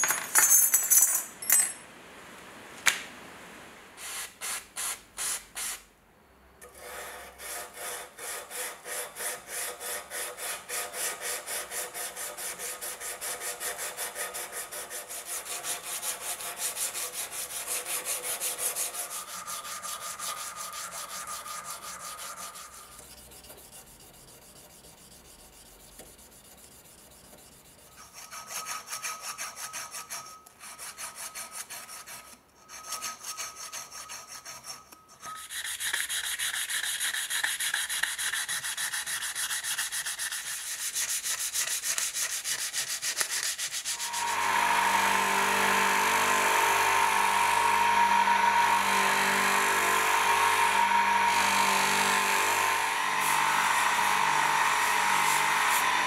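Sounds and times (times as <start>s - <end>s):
faint metal ringing: 0.0s - 1.9s
file strokes on metal: 6.6s - 56.0s.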